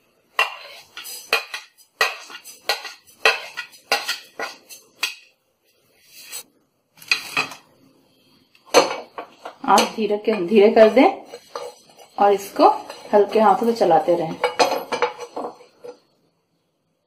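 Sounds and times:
spoon scraping and tapping a plate: 0.4s - 5.3s, 8.7s - 16.1s.

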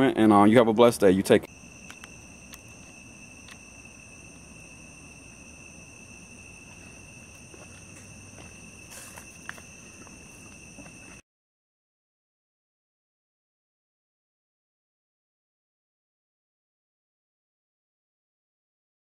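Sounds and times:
crickets trilling: 0.0s - 11.2s
faint outdoor hiss: 0.0s - 11.2s.

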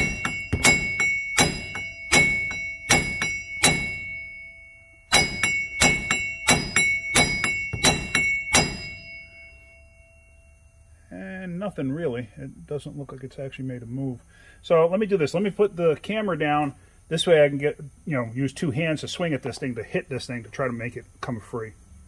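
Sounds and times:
hammer striking metal: 0.0s - 4.5s, 5.1s - 9.6s
metal ringing: 0.0s - 10.9s.

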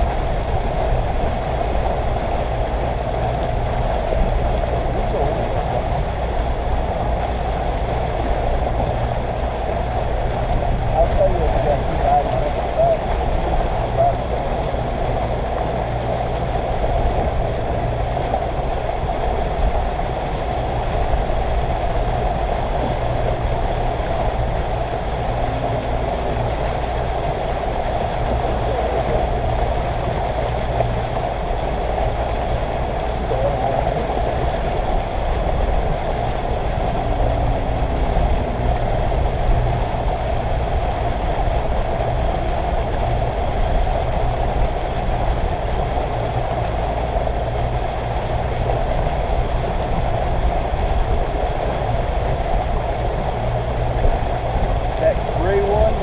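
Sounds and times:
boat motor humming: 0.0s - 56.0s.

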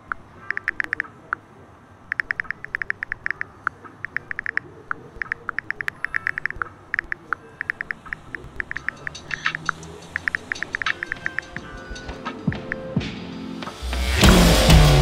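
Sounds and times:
phone keyboard tap ticks: 0.1s - 1.1s, 2.1s - 12.9s.

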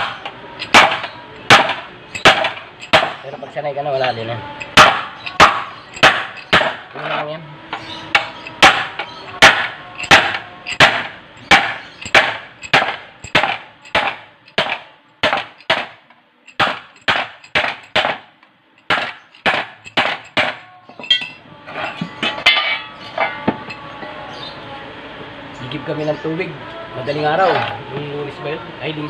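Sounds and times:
hammer striking metal sheet: 0.0s - 3.2s, 4.6s - 6.9s, 8.1s - 18.3s.

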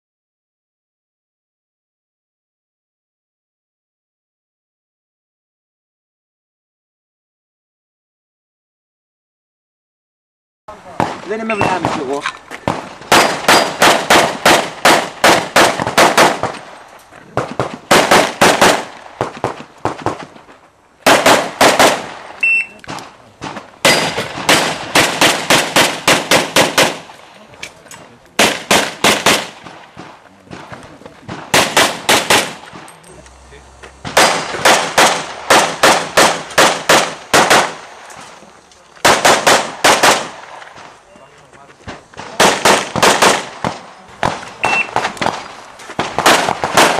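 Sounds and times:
rapid pistol shots: 11.0s - 16.8s, 17.4s - 20.3s, 21.0s - 27.1s, 28.4s - 30.7s, 31.3s - 32.9s, 34.0s - 38.0s, 39.0s - 40.9s, 42.2s - 46.9s.

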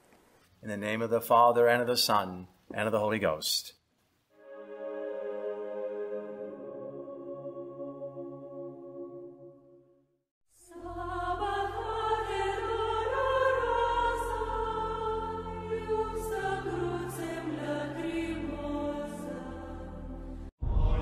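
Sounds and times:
choral music with deep bass: 4.4s - 9.9s, 10.6s - 21.0s
soft ambient music: 4.4s - 10.0s.

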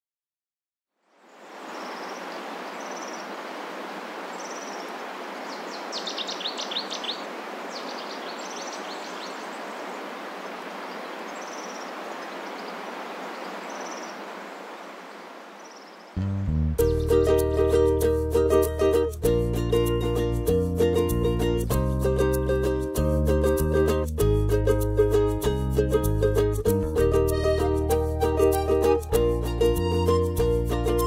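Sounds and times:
small birds chirping: 1.2s - 17.5s.

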